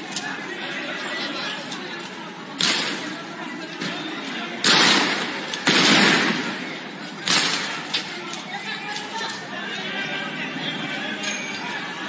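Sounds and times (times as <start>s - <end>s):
crowd noise: 0.0s - 12.0s
loud gunshot-like bangs: 4.6s - 6.6s, 7.2s - 7.8s.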